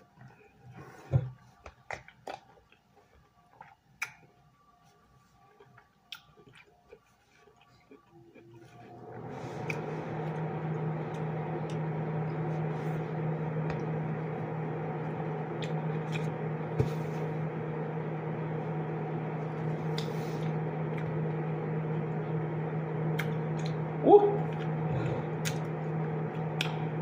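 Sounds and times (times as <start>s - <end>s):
appliance humming: 7.6s - 27.0s.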